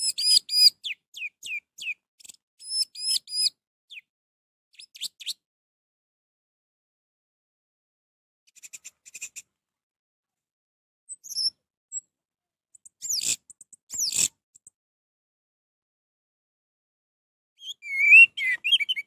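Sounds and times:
bird calling: 0:17.6 - 0:19.0.

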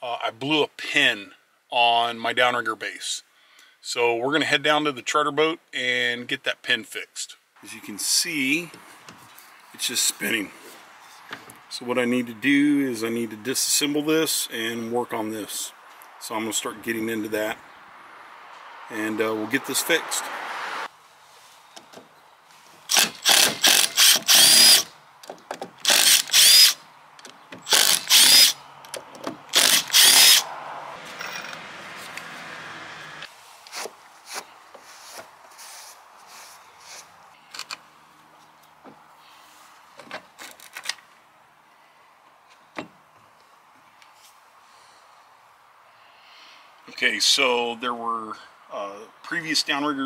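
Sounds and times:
cordless drill whine: 0:22.9 - 0:24.9, 0:25.8 - 0:26.8, 0:27.7 - 0:28.6, 0:29.5 - 0:30.5.

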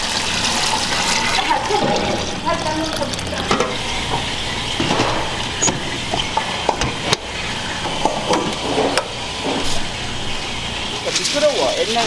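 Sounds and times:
steady kitchen din: 0:00.0 - 0:12.0
metal pots and utensils clinking: 0:00.9 - 0:10.0.

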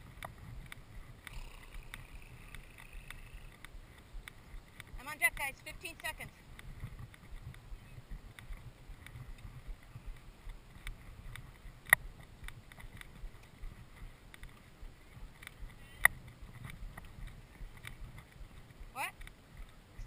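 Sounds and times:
horse tack creaking: 0:00.0 - 0:20.0
sharp clicks: 0:00.1 - 0:07.6.

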